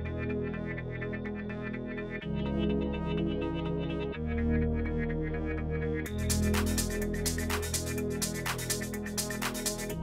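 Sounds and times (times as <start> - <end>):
held synth chords: 0.0 - 10.0
quick ticking beat: 6.1 - 10.0.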